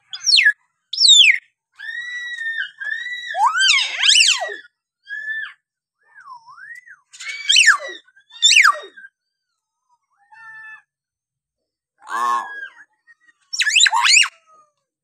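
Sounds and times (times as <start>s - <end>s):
bird whistling: 0.1s - 1.4s, 6.2s - 9.0s, 13.5s - 14.3s
sharp down-sweeping bird calls: 0.1s - 4.6s, 7.1s - 9.0s, 13.5s - 14.3s.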